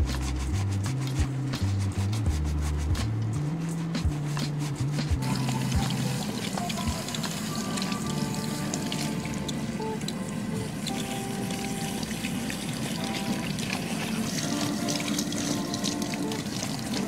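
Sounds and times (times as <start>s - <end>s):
soft music: 0.0s - 17.0s
water running from tap: 5.2s - 17.0s.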